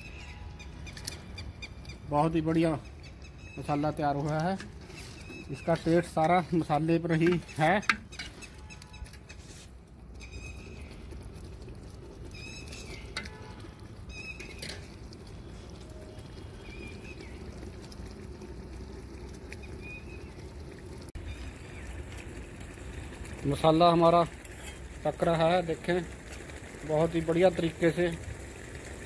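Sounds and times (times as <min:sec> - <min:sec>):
bird chirps: 0:00.0 - 0:02.1, 0:04.9 - 0:06.0, 0:10.2 - 0:11.1
pot simmering over fire: 0:00.0 - 0:29.0.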